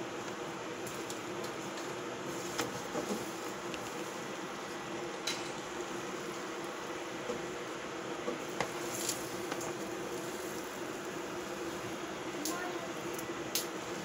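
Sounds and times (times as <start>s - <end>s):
kitchen hiss with low hum: 0.0s - 14.0s.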